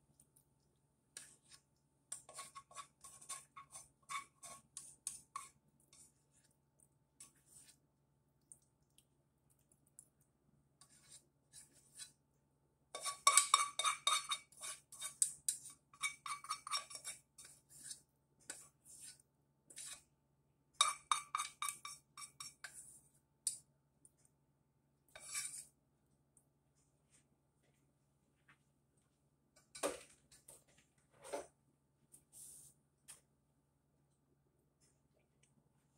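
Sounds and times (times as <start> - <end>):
spatula scraping metal saucepan: 1.2 - 6.4, 7.2 - 7.8, 10.8 - 12.2, 12.9 - 20.1, 20.8 - 23.0, 25.1 - 25.8.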